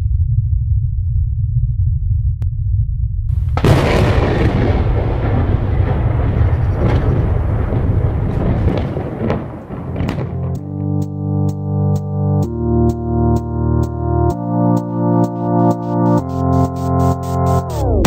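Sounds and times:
deep steady rumble: 0.0 - 10.6
blast with loud crackling: 3.4 - 10.7
sharp cracks: 3.5 - 10.8.

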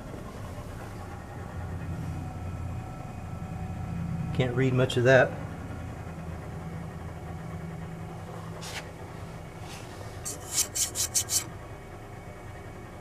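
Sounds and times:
refrigerator compressor humming: 0.0 - 13.0
lone scrape: 9.6 - 11.5
short scratchy rubs: 9.6 - 11.5.

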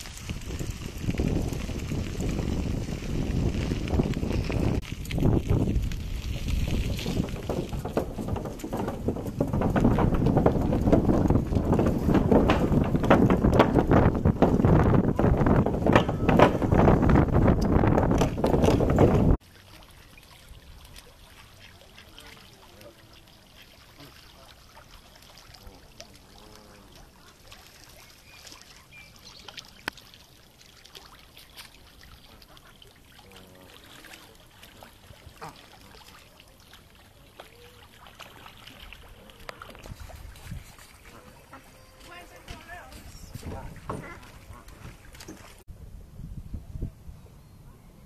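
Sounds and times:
wind buffeting microphone: 0.0 - 19.4, 38.8 - 48.0.

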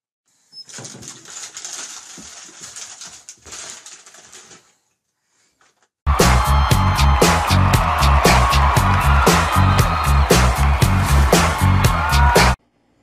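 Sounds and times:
plastic package crinkling: 0.7 - 4.9.

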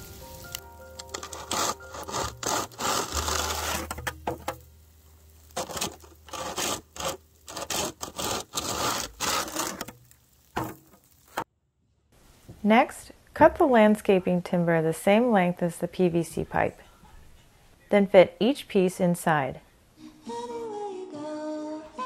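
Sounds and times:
rough rasping strokes: 1.0 - 4.6, 5.4 - 10.8.

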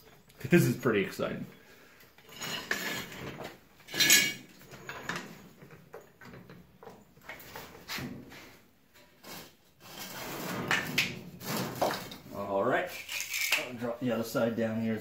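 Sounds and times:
metal clanking and clinking: 2.2 - 7.0.

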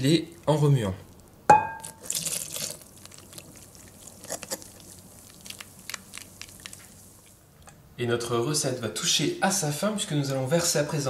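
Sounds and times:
whisk striking glass bowl: 1.5 - 2.0
milk pouring into batter: 1.8 - 7.3.

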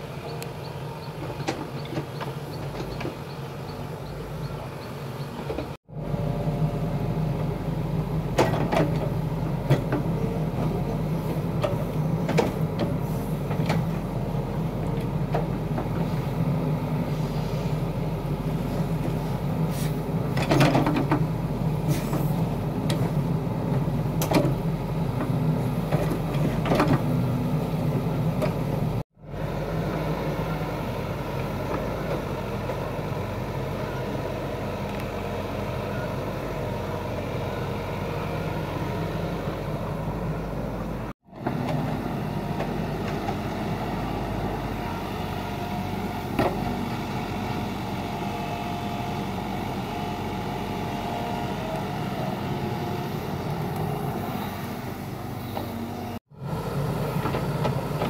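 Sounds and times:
excavator diesel engine running: 0.0 - 58.0.

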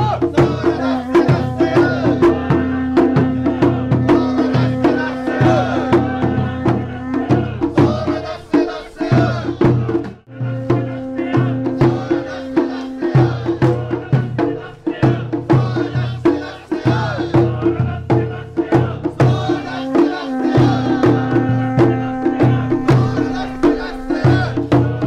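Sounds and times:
drums beating: 0.0 - 25.0
sustained held notes: 19.2 - 24.7.

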